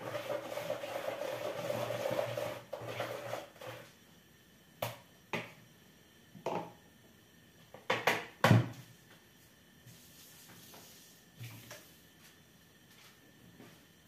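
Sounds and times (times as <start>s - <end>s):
wire whisk beating batter: 0.0s - 3.8s.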